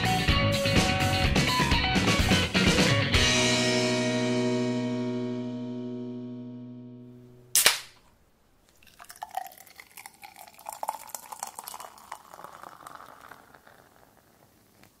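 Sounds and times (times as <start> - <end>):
beer pouring into a glass: 8.7 - 15.0
bubbles crackling: 8.7 - 15.0.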